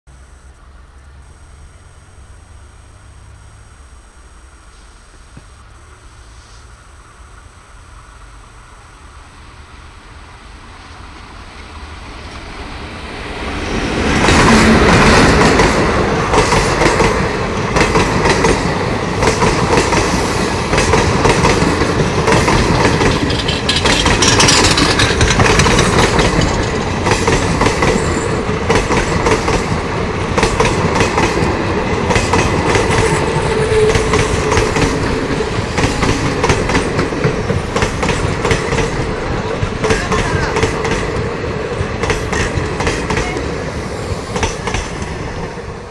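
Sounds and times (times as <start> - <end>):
train passing at speed: 5.7 - 45.9
wheels clattering over rail joints: 20.7 - 43.5.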